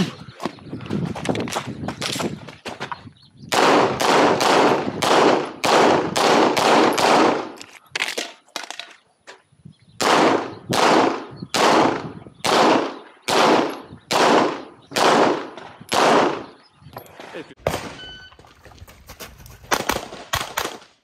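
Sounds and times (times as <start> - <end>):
pistol shots in rapid string: 3.5 - 7.5, 10.0 - 16.5.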